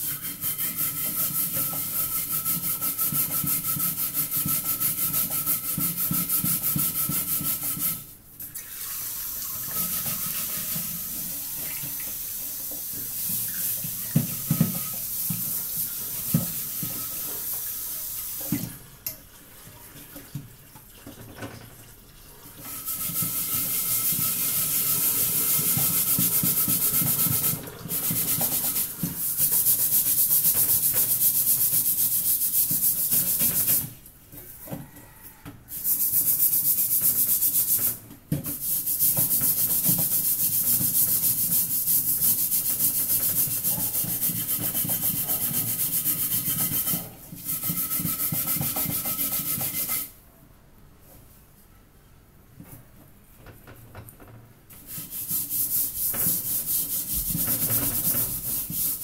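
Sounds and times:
scrubbing metal wok: 0.0 - 8.1, 38.6 - 50.1, 54.9 - 59.0
water running into sink: 8.4 - 29.3.

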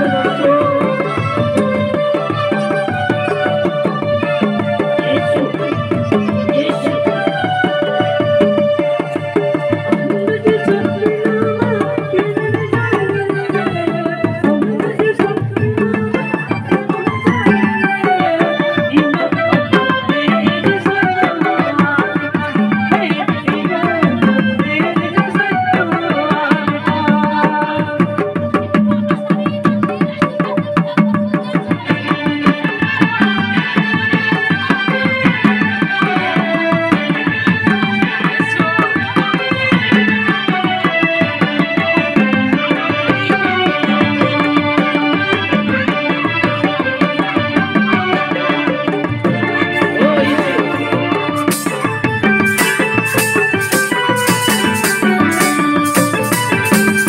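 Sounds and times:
hand drum rhythm: 0.0 - 57.0
electronic keyboard melody: 47.8 - 57.0.

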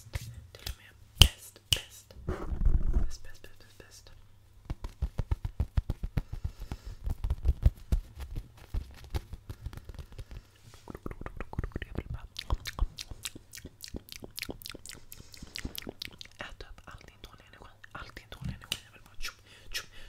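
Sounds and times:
scratching on microphone windscreen: 2.3 - 3.2.

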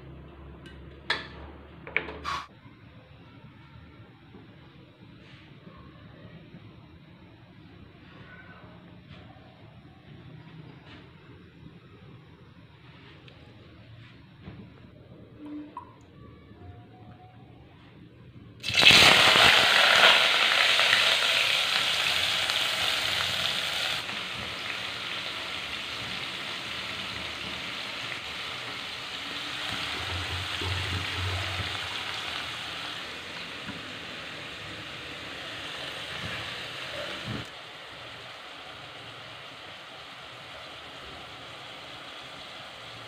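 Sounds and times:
vegetables sizzling in hot oil: 18.6 - 43.0.

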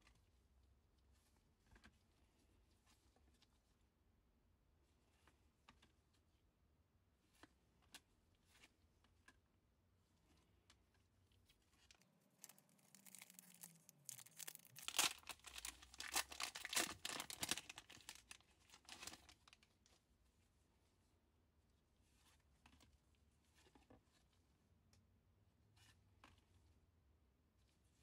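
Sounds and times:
foil wrapper tearing and crinkling: 11.9 - 19.6.

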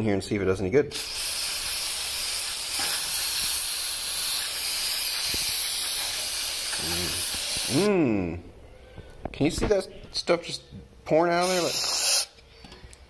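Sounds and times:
aerosol can spraying hiss: 1.0 - 7.9, 11.4 - 12.4.

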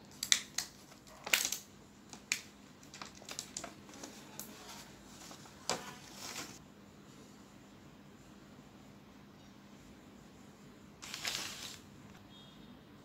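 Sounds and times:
scraping rustle: 4.0 - 6.6.

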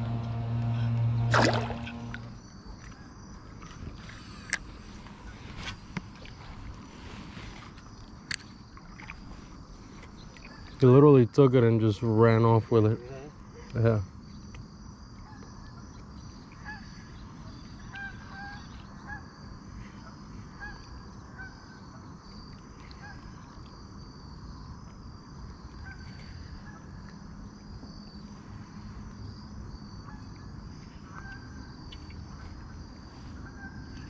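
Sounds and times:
low outdoor rumble: 0.0 - 3.0
high insect chorus: 0.0 - 34.0.

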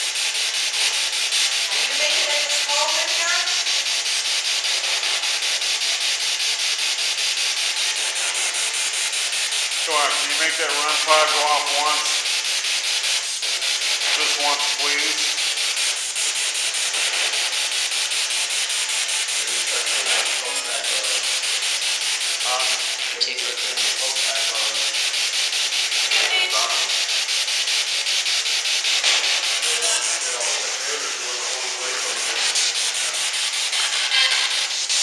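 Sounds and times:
voice-like snatches: 19.4 - 21.2, 22.5 - 24.8
radio static hiss with chopping: 22.5 - 24.7, 26.1 - 26.9.

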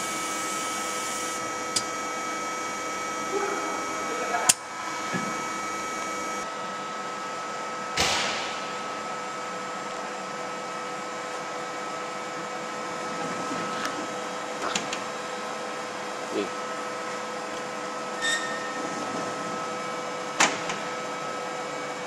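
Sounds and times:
lathe humming: 0.0 - 6.8.

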